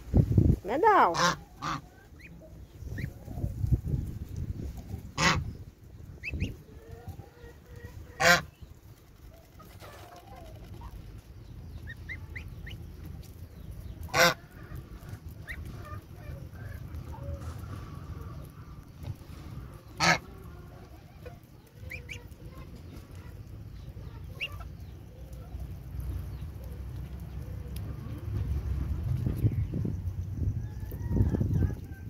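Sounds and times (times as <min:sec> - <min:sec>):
goslings peeping: 0:00.7 - 0:28.2
goose honking: 0:00.9 - 0:02.3, 0:05.1 - 0:05.5, 0:08.1 - 0:08.5, 0:14.1 - 0:18.6, 0:19.6 - 0:20.8.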